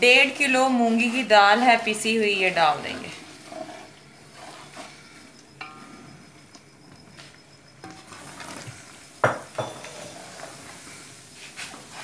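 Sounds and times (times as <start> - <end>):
spoon stirring and scraping: 0.0 - 12.0
spoon clanking against metal pot: 5.6 - 6.0, 9.2 - 10.1.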